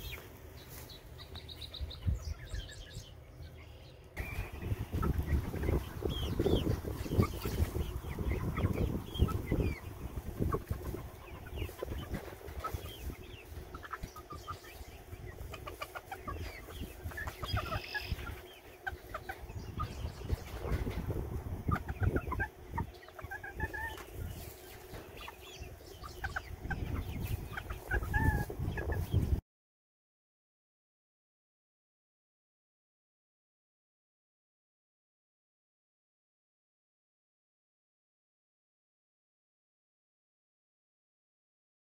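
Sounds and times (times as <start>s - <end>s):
chickens clucking: 0.0s - 29.4s.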